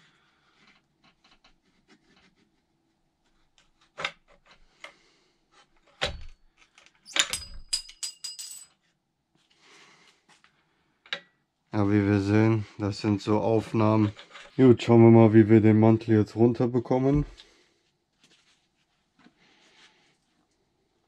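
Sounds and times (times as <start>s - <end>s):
sharp metallic clinks: 7.1s - 8.7s.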